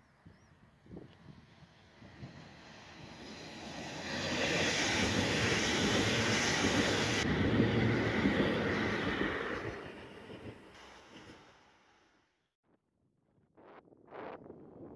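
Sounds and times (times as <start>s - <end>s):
passenger train passing at speed: 0.9s - 12.0s
rushing air: 1.3s - 11.9s
train wheels on rails: 2.0s - 12.0s.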